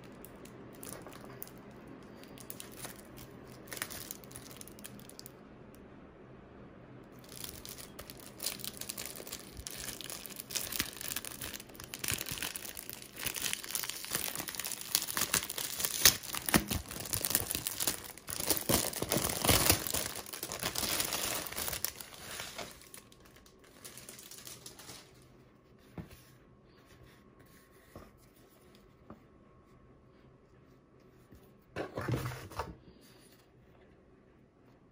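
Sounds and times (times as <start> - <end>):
plastic bag crinkling: 0.0 - 5.3, 7.2 - 25.3.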